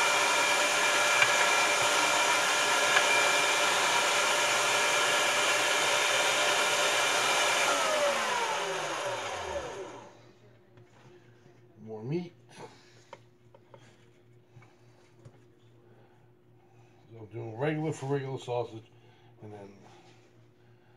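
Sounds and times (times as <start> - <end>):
meat grinder motor running: 0.0 - 10.1.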